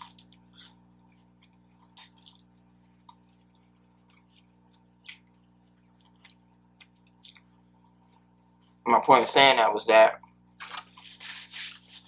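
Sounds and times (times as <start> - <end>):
person chewing food: 0.0 - 8.8
faint steady hum: 0.0 - 12.0.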